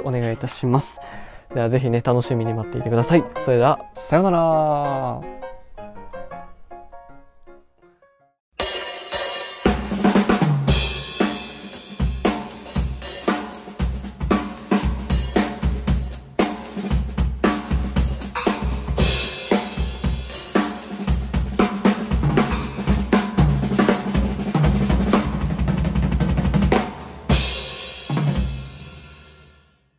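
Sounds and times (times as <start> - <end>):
cymbal crashes ringing: 8.6 - 13.6
drum kit playing: 8.6 - 29.6
backing track with bass line: 9.6 - 28.5.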